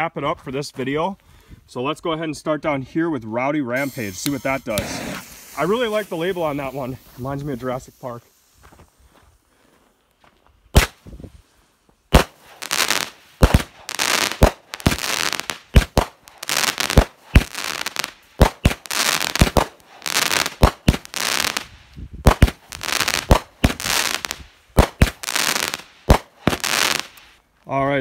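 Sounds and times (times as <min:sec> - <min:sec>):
firework crackling bursts: 0:03.8 - 0:08.8, 0:10.7 - 0:11.1, 0:12.1 - 0:27.4
firework launch thumps: 0:12.1 - 0:27.2.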